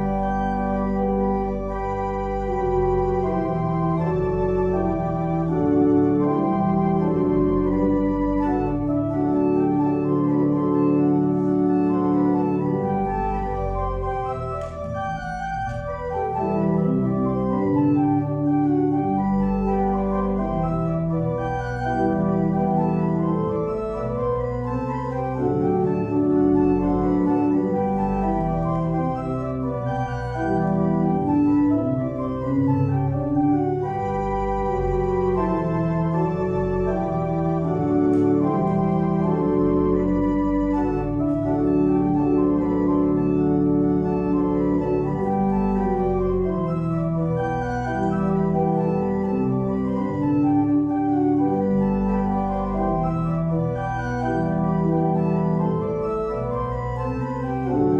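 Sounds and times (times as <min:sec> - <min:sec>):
church organ chords: 0:00.0 - 0:57.9.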